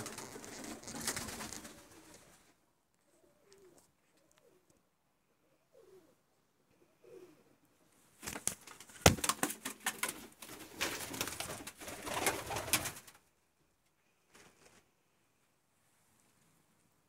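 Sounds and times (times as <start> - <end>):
rustling and clattering: 0.0 - 2.5
faint bird cooing: 3.0 - 7.8.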